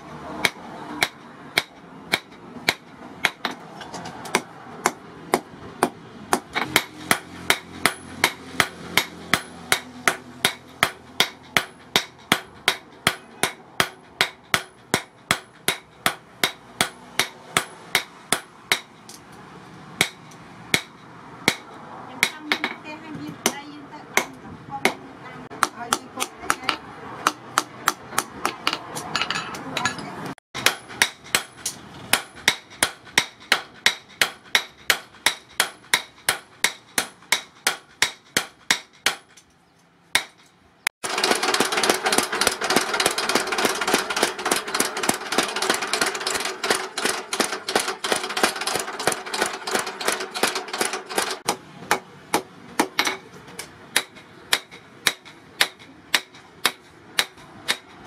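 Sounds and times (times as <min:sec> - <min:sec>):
steady background noise: 0:00.0 - 0:58.0
hammer striking metal on anvil: 0:04.3 - 0:19.2, 0:20.0 - 0:22.8, 0:24.2 - 0:39.4, 0:40.2 - 0:53.3.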